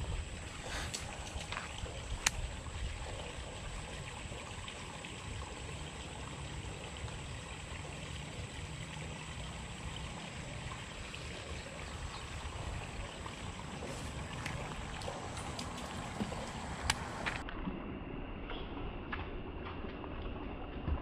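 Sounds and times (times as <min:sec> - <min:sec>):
even hiss: 0:00.0 - 0:03.4.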